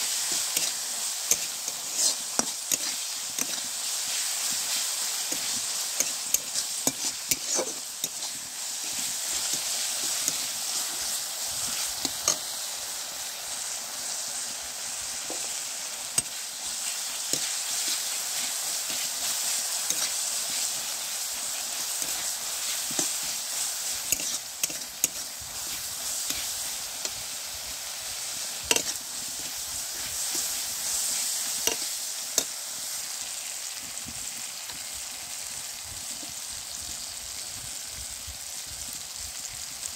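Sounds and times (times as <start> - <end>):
vegetables sizzling in oil: 0.0 - 39.9
metal spatula scraping pan: 0.3 - 11.1, 24.0 - 27.2, 28.7 - 30.5.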